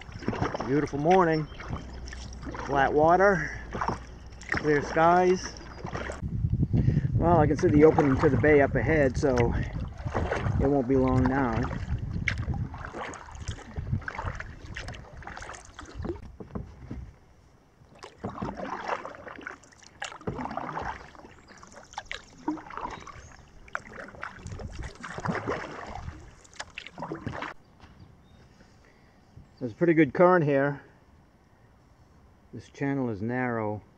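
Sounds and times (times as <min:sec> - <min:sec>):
paddle splashing water: 0:00.0 - 0:06.2, 0:07.3 - 0:27.7.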